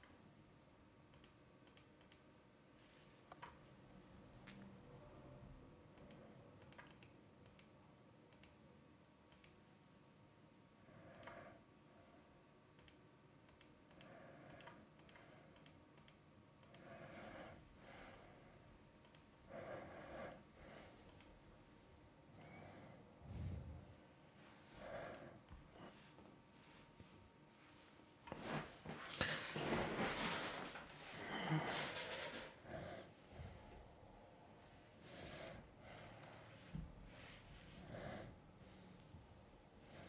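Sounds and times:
computer mouse clicks: 1.1s - 2.3s, 5.9s - 8.6s, 9.3s - 9.6s, 11.0s - 11.5s, 12.7s - 18.2s, 19.0s - 19.3s, 20.8s - 21.4s, 24.9s - 25.4s, 35.0s - 36.5s.

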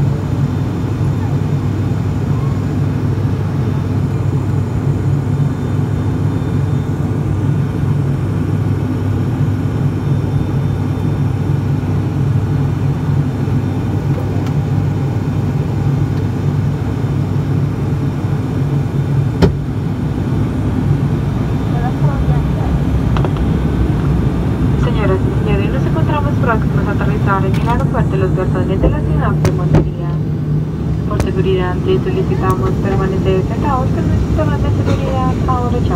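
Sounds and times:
turboprop engines droning in cabin: 0.0s - 35.9s.

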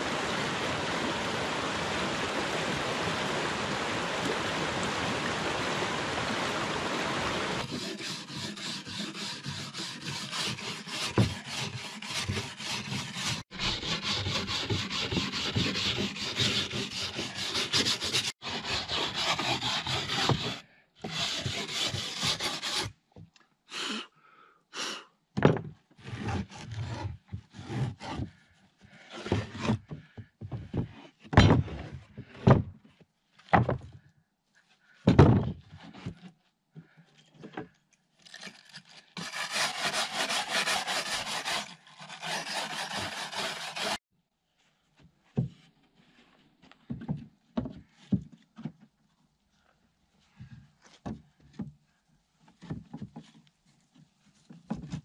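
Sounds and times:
hand tool scraping wood: 7.6s - 23.0s, 26.0s - 32.4s, 38.3s - 44.0s
wood knocks: 35.1s - 35.6s.

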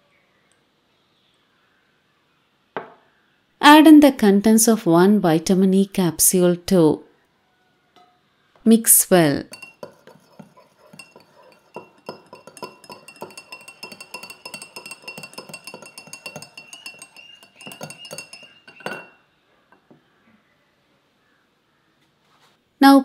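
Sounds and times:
knock on bowl: 2.8s - 3.0s, 9.5s - 19.2s
wire whisk clinking against bowl: 9.5s - 19.2s.

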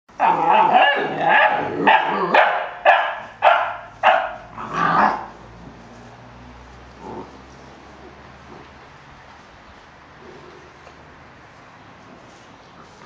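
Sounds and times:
puppies barking and growling: 0.1s - 6.3s.

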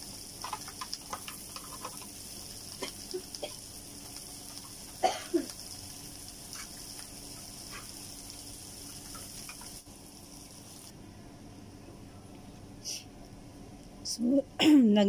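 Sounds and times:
vegetables sizzling in a pan: 0.0s - 10.9s.

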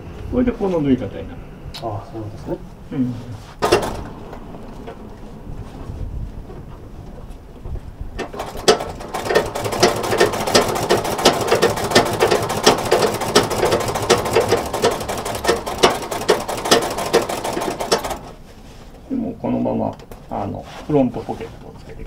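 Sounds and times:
sewing machine stitching: 8.2s - 18.4s.

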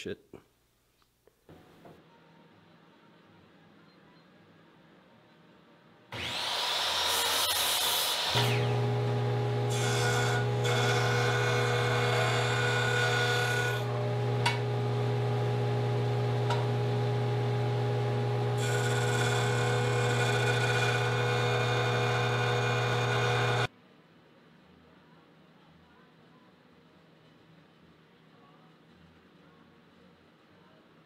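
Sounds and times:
rasping wood cut: 6.2s - 14.8s, 18.1s - 23.7s
jointer motor hum: 8.1s - 23.7s.

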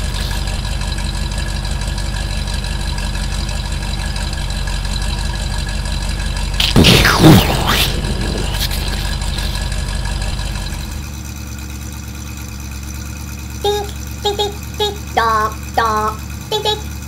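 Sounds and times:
car engine running: 0.0s - 17.0s
exhaust puff burst: 6.6s - 9.7s.

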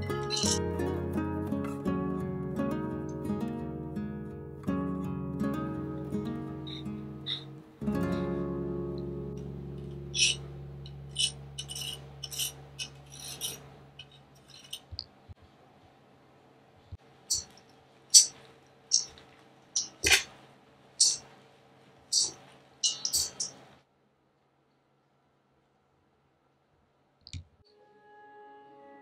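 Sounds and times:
utensils clinking against metal bowl: 0.1s - 0.6s, 10.2s - 14.9s, 17.3s - 17.6s, 18.2s - 19.2s, 19.8s - 20.3s, 21.0s - 21.3s, 22.2s - 23.6s
lemon scraped on zester: 11.2s - 14.9s.

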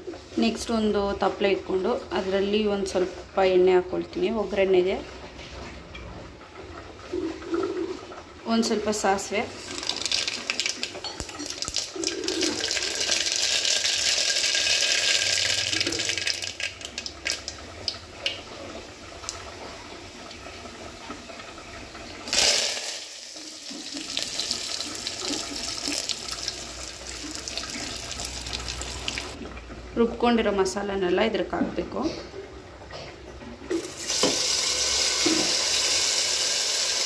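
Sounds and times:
seeds sizzling in hot oil: 9.6s - 17.6s, 22.3s - 29.4s, 33.8s - 37.0s
leaves sizzling in hot oil: 9.6s - 18.0s, 22.3s - 29.4s, 33.8s - 37.0s
oil popping: 9.6s - 19.6s, 22.2s - 29.6s.

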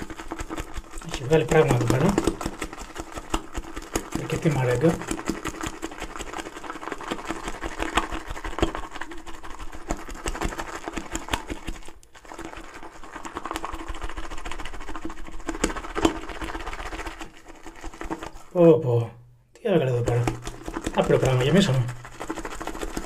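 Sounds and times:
shaving brush swishing lather: 0.0s - 18.6s, 19.8s - 23.0s.

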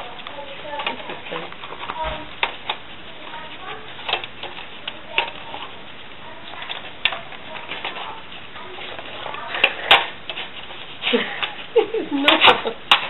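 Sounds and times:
plastic toy clicks and knocks: 12.2s - 13.0s.

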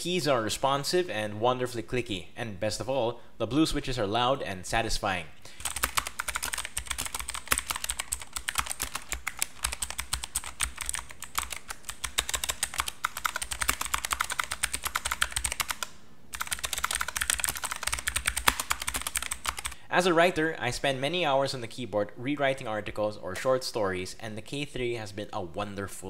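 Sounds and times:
mechanical keyboard typing: 5.6s - 19.8s.

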